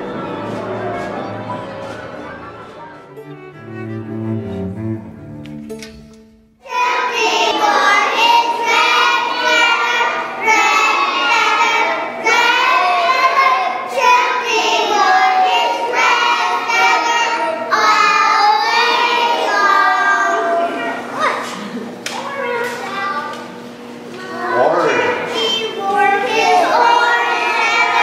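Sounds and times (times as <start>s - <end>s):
young children singing: 6.6s - 21.2s, 24.2s - 28.0s.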